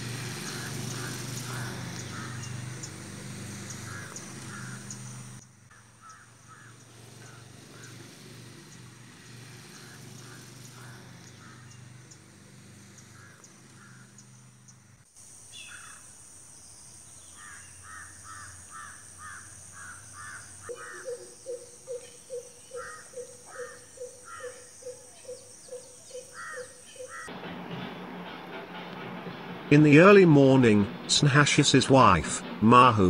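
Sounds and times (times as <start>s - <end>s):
low hooting bird call: 0.4s - 8.0s, 17.4s - 27.3s
crows cawing: 0.4s - 8.2s, 9.7s - 11.9s, 13.0s - 14.3s, 15.6s - 16.0s, 17.4s - 25.0s, 25.7s - 27.3s
high-pitched hiss: 15.1s - 20.7s.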